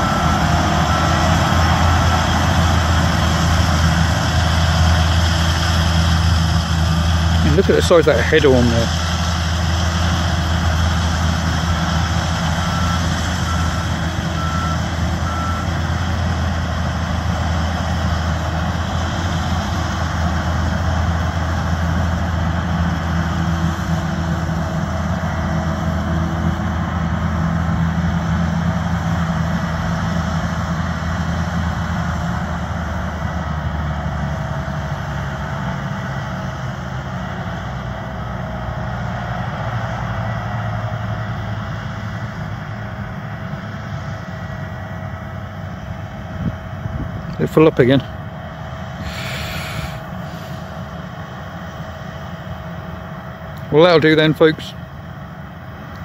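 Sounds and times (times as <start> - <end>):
reversing alarm beeping: 0.0 - 2.9, 12.0 - 16.1
combine harvester engine drone: 0.0 - 56.0
thin wavering whine: 49.0 - 54.0.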